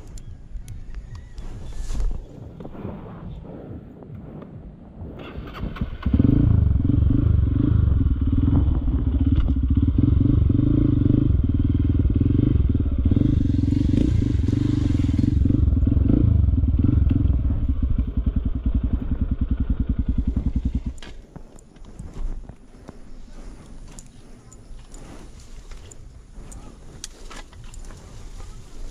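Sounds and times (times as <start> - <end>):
dirt bike engine revving: 5.3 - 21.2.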